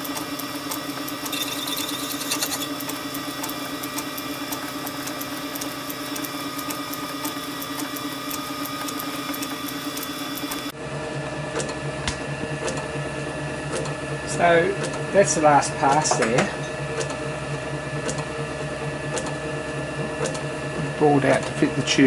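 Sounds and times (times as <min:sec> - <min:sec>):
metal lathe motor hum: 0:00.0 - 0:11.5.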